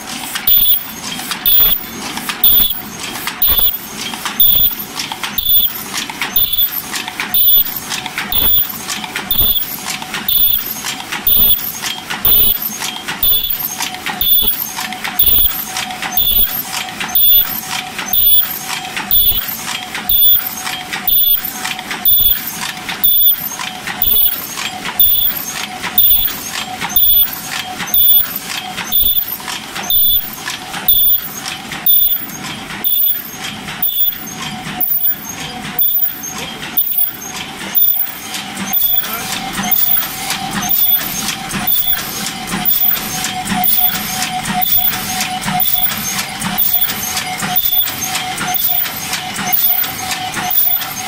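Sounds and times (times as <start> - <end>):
machine rhythmic clatter: 0.0 - 51.0.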